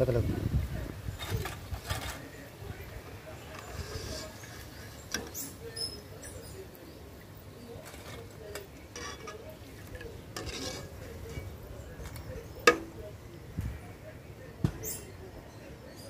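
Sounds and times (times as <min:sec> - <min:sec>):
metal skimmer scraping a pan: 0:01.2 - 0:02.3, 0:03.4 - 0:06.6, 0:07.6 - 0:13.1.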